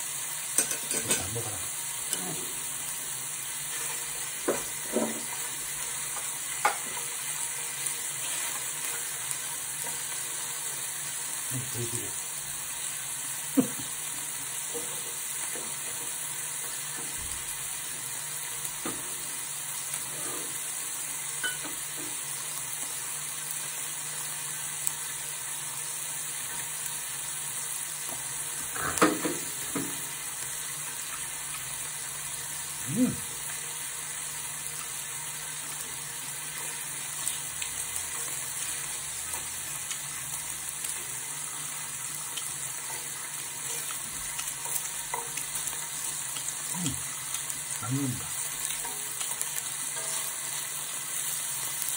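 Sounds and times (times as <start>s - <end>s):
meat sizzling in a pan: 0.0s - 51.9s
chopsticks stirring: 42.2s - 51.3s.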